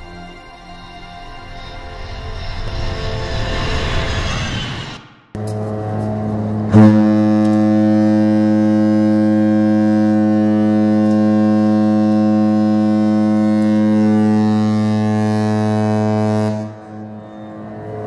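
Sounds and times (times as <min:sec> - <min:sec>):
ship horn deep blast: 0:05.4 - 0:18.0.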